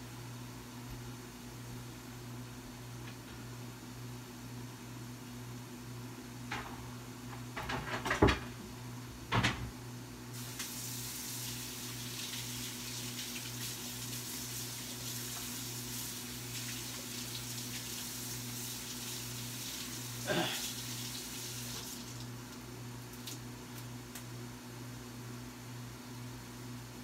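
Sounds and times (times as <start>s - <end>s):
faucet running into sink: 10.5s - 22.3s.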